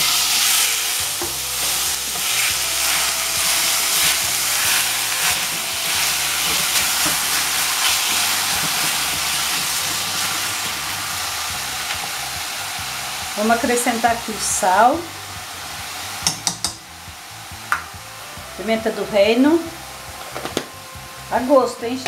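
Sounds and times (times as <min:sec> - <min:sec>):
spatula stirring meat: 0:00.0 - 0:13.5
meat sizzling in a pot: 0:00.0 - 0:22.0.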